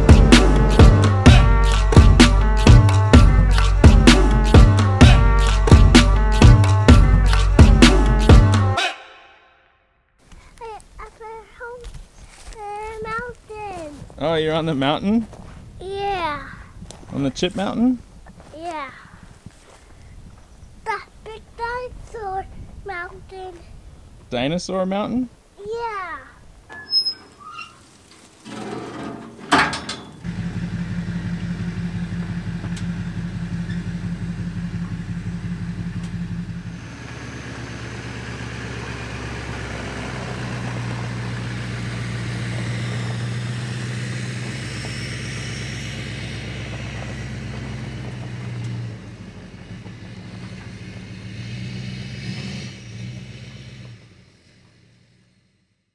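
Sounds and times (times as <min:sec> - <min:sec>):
large engine running: 0:00.0 - 0:08.5, 0:28.4 - 0:55.7.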